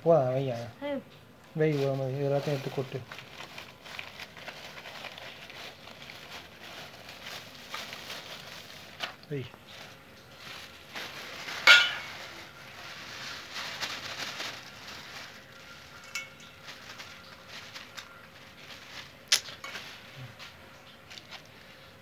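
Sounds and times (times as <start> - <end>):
plastic bag rustling: 1.6 - 22.0
steel ladle clinking in bowl: 11.7 - 12.1, 16.0 - 16.6.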